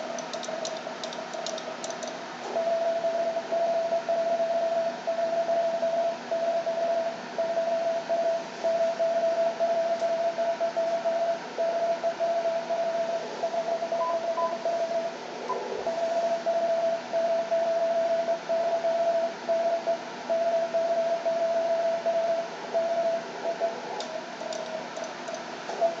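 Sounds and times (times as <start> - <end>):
morse code tone: 5.2 - 15.1.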